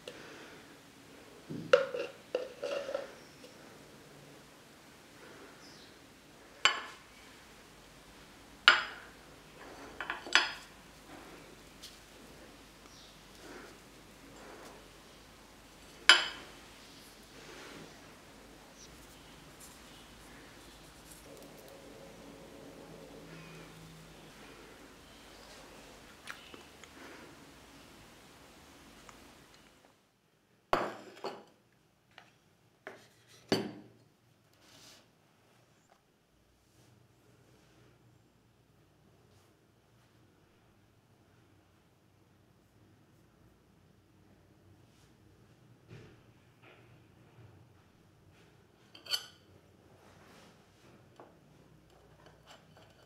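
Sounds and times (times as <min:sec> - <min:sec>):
kitchenware clinking: 0:01.6 - 0:03.6, 0:06.6 - 0:07.1, 0:08.6 - 0:10.8, 0:15.9 - 0:16.6, 0:48.9 - 0:49.5.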